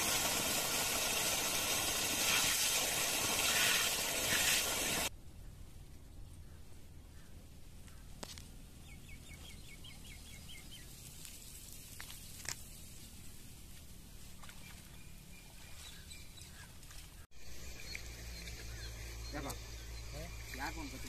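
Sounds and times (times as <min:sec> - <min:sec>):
bird chirping: 0:08.8 - 0:10.9, 0:14.4 - 0:21.0.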